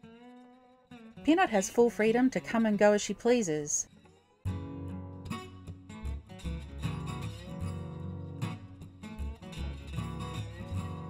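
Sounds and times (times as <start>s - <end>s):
guitar music: 4.5s - 11.0s.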